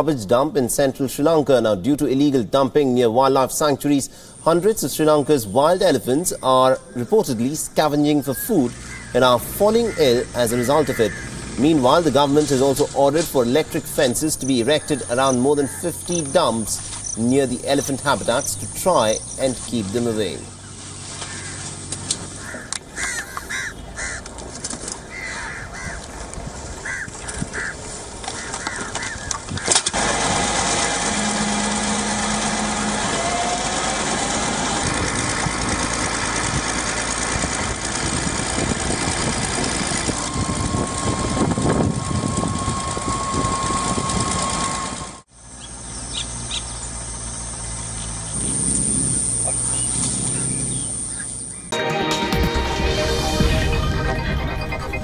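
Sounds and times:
noisy rumble: 0.0 - 55.0
crows calling: 5.6 - 30.0
short bird calls: 8.0 - 11.5, 20.3 - 24.2.

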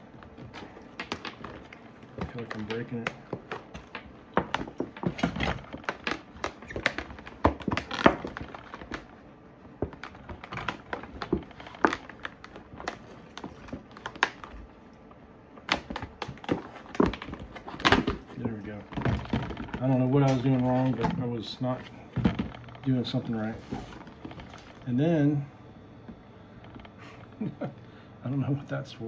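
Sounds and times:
camping bucket fabric crinkling: 0.0 - 9.2.

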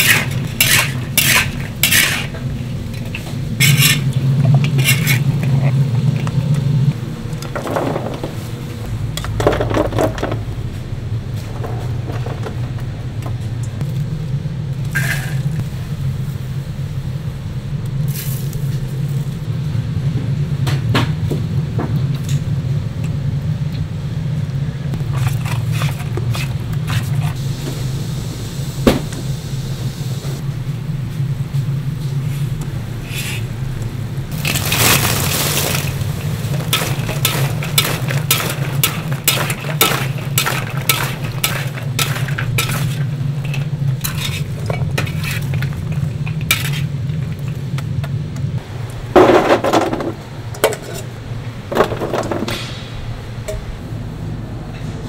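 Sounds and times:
metal spatula scraping a pot: 0.0 - 2.4, 3.1 - 5.7, 36.5 - 46.9
steady low hum: 0.0 - 55.0.

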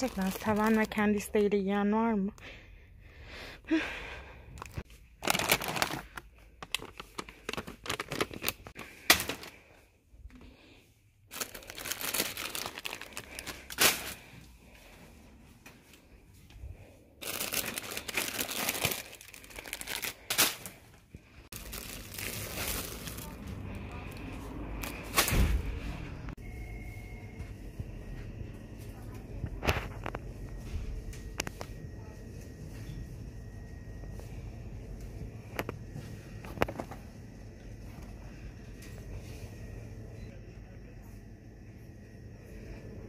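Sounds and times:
plastic packets crinkling: 0.0 - 1.3, 4.6 - 9.7, 11.3 - 14.4, 17.2 - 24.2.

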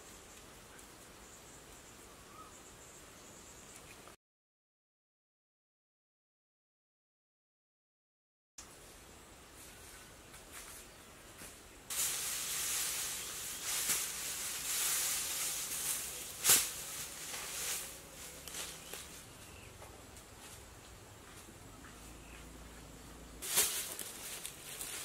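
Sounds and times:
dry thatch rustling: 8.8 - 22.2, 23.4 - 25.0
sharp crack: 13.6 - 17.9, 23.4 - 24.2.

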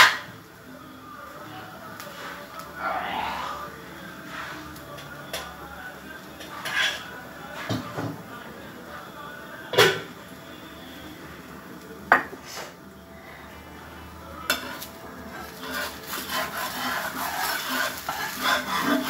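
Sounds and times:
faint sizzle on griddle: 0.0 - 19.0
metal spatula scraping griddle: 2.0 - 5.4, 6.4 - 7.8, 14.5 - 19.0.

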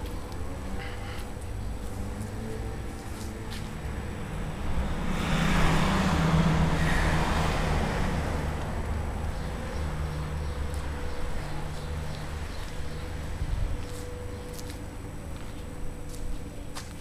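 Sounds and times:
car driving past: 0.6 - 13.4.

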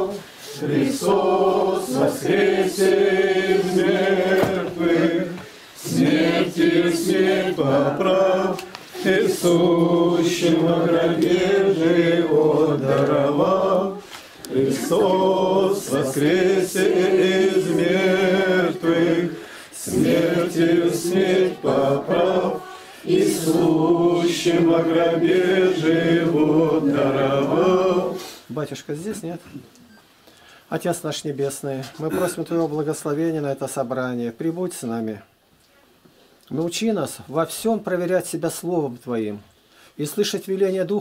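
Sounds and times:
group singing a prayer chant: 0.0 - 28.6.

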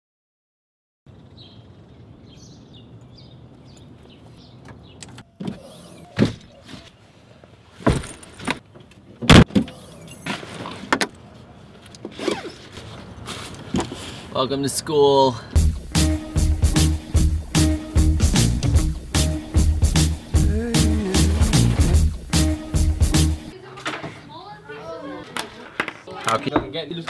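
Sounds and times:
bags thudding in car trunk: 7.8 - 8.6.

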